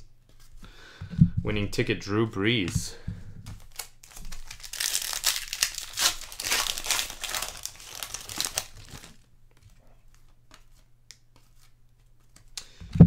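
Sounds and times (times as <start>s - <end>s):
card pack wrapper crinkling: 3.5s - 9.3s.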